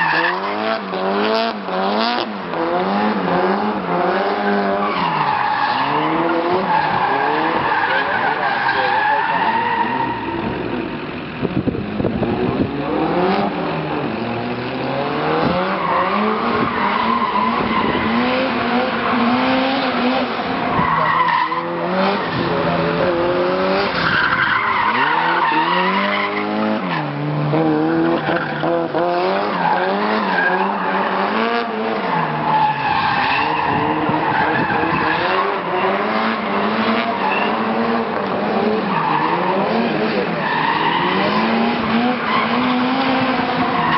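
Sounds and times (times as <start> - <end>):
car engine revving: 0.0 - 43.9
tyres squealing: 23.9 - 31.2.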